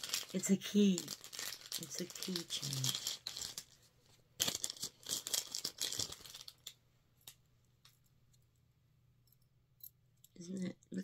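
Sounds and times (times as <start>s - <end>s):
packaging crinkling and tearing: 0.0s - 3.8s, 4.4s - 6.8s.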